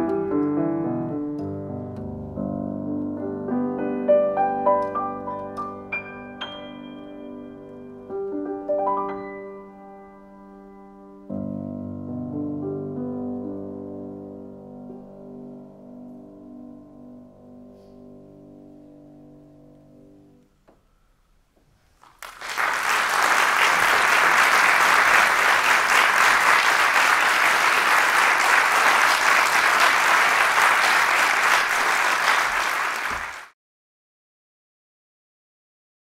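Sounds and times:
audience applause: 22.0 - 33.5.

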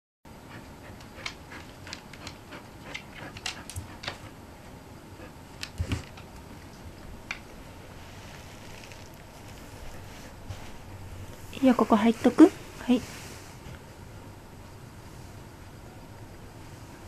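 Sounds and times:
dog claws clicking on wood: 1.2 - 4.3.

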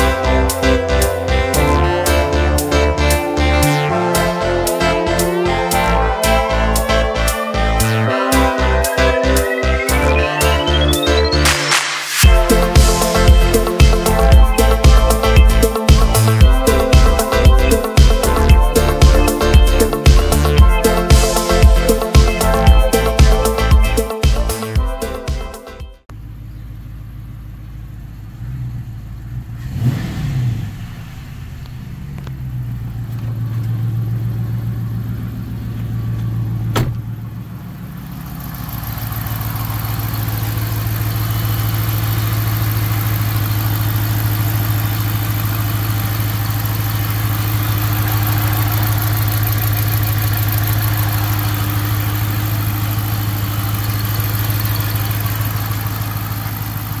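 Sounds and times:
engine revving: 0.0 - 25.2, 28.3 - 57.0
car engine idling: 12.2 - 30.0, 30.6 - 57.0.

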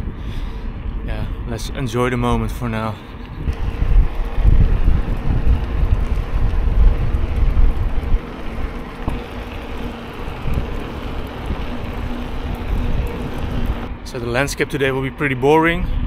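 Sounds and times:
wind buffeting microphone: 0.0 - 16.0
tyres rolling on asphalt: 2.0 - 14.6.

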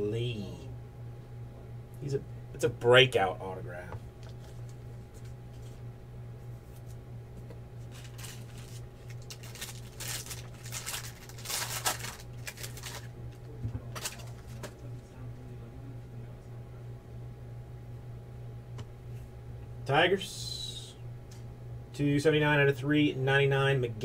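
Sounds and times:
steady low hum: 0.0 - 24.0
foil wrappers crinkling: 7.8 - 14.8.

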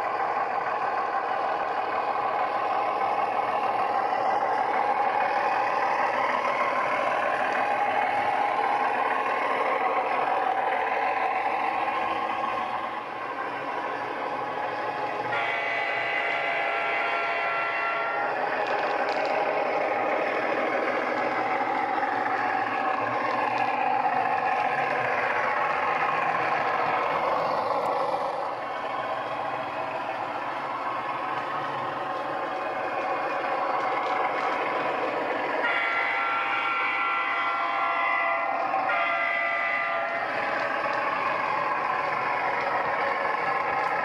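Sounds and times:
diesel engine sound: 0.0 - 44.0
model locomotive horn: 15.3 - 18.4, 35.6 - 40.3.

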